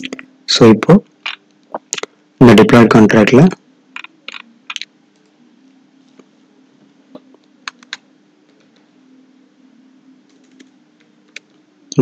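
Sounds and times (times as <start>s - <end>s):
low steady hum: 0.0s - 12.0s.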